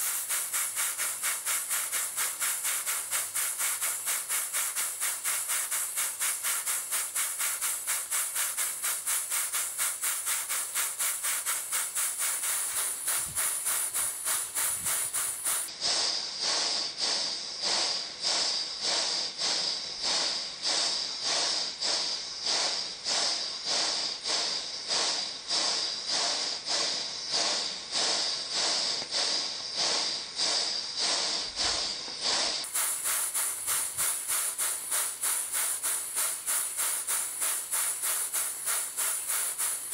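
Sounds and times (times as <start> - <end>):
model steam engine chuffing: 0.0 - 39.9.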